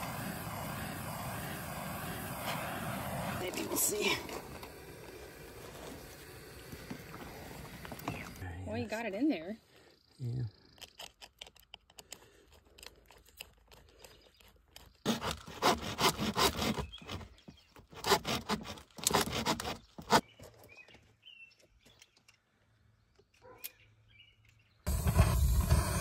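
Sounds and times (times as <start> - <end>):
hand saw rasping through plastic pipe: 15.0 - 20.2.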